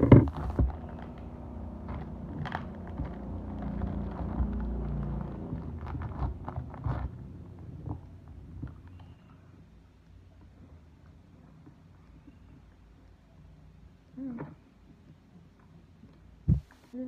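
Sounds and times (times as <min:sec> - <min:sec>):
low steady rumble: 0:00.0 - 0:17.0
plastic wrapper crinkling and tearing: 0:00.3 - 0:07.9.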